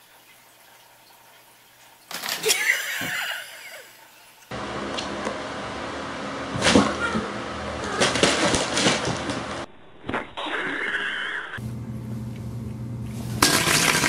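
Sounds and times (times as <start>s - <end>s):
cats thumping and scuffling: 7.8s - 9.6s.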